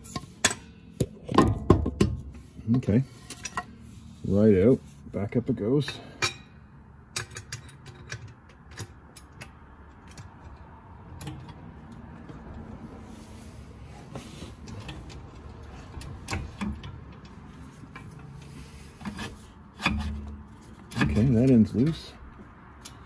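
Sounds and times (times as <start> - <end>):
hydraulic jack being pumped: 18.0 - 21.5.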